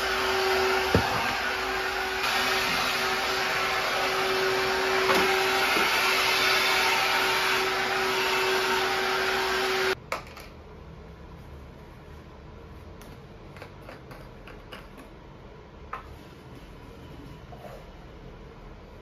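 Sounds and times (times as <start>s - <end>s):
vacuum motor whine: 0.0s - 10.0s.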